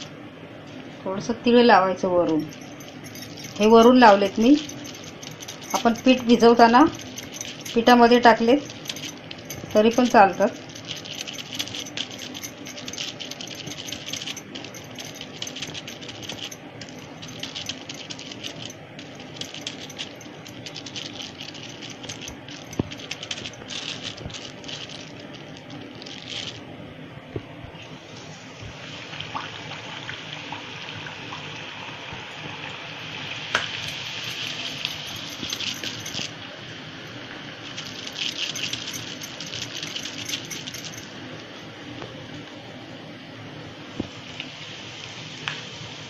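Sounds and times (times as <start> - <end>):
plastic sheet crinkling: 17.2 - 26.6.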